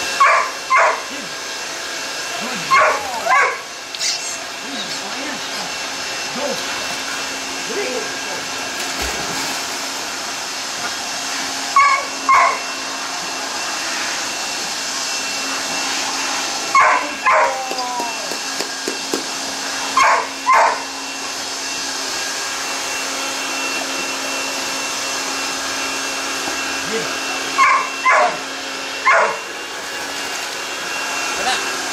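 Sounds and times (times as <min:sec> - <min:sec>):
dog barking: 0:00.2 - 0:01.1, 0:02.7 - 0:03.7, 0:11.8 - 0:12.6, 0:16.8 - 0:17.5, 0:20.0 - 0:20.9, 0:27.6 - 0:28.4, 0:29.0 - 0:29.4.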